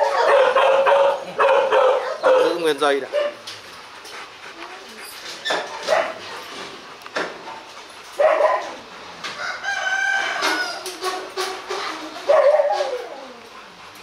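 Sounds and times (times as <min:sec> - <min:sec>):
rooster crowing: 0:09.4 - 0:11.1
dog vocalisations: 0:12.1 - 0:13.8.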